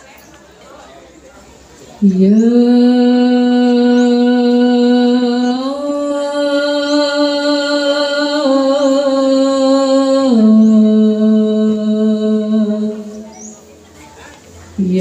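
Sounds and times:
woman singing unaccompanied: 2.0s - 13.6s, 14.8s - 15.0s.

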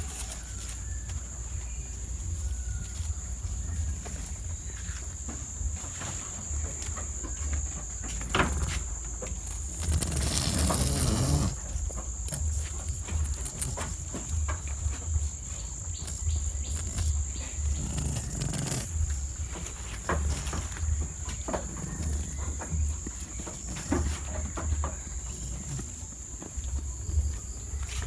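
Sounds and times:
goats chewing leaves: 0.0s - 28.0s
high insect trill: 0.0s - 28.0s
leafy stems rustling: 0.0s - 28.0s.

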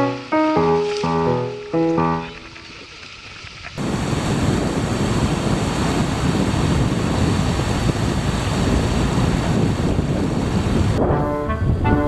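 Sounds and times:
wind buffeting microphone: 2.3s - 12.0s.

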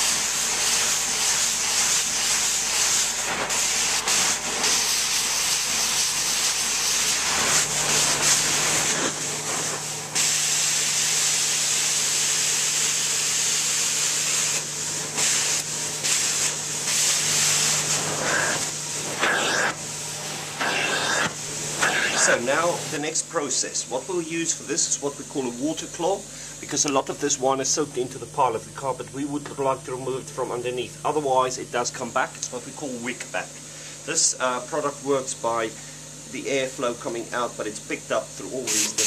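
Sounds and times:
extraction machine humming: 17.5s - 33.4s.

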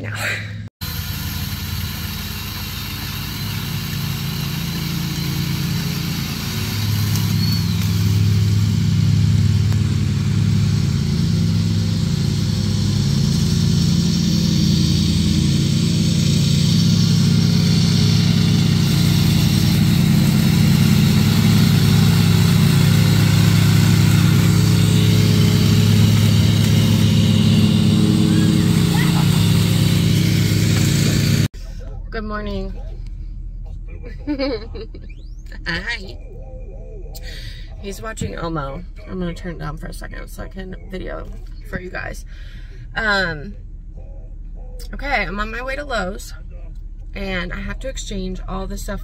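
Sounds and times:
riding lawn mower engine running: 0.8s - 36.3s.

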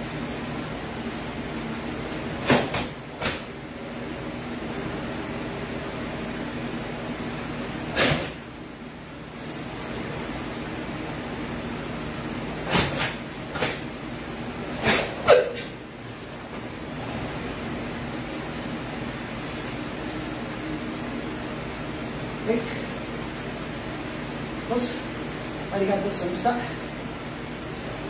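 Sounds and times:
cloth swishes and snaps: 2.2s - 3.5s, 12.7s - 13.9s.

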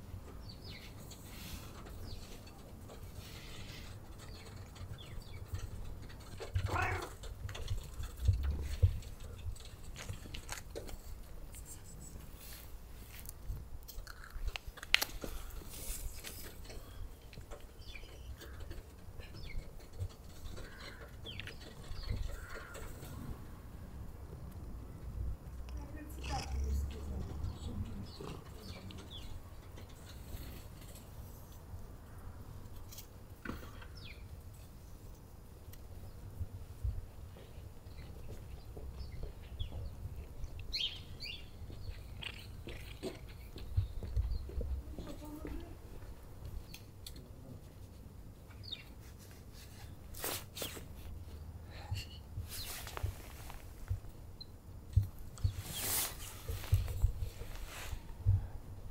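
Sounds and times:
cat purring: 26.0s - 28.8s
hand stroking fur: 55.5s - 58.1s.

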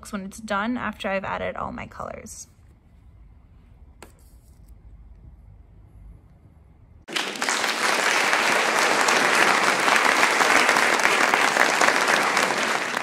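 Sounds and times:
hands clapping: 7.1s - 13.0s.

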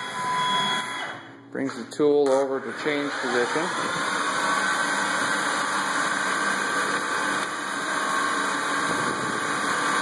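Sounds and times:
metal lathe running: 2.6s - 10.0s.

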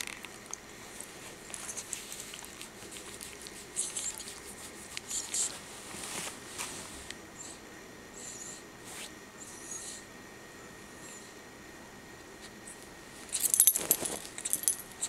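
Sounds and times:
dog rustling against couch cushion: 5.4s - 7.1s.

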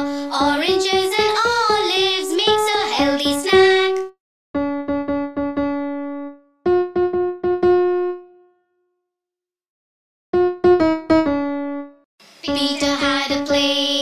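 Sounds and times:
piano-like keyboard jingle: 2.2s - 8.6s, 10.4s - 12.0s.

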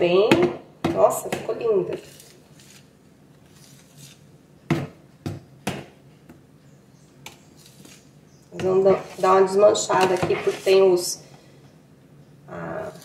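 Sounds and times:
spoon stirring thick mixture: 8.6s - 11.1s.

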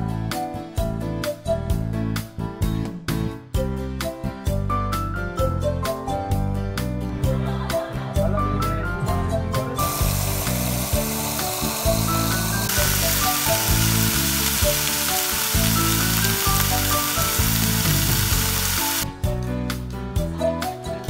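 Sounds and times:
background music: 0.0s - 21.0s
meat sizzling in a frying pan: 9.9s - 19.1s
tap water running: 9.9s - 19.1s.

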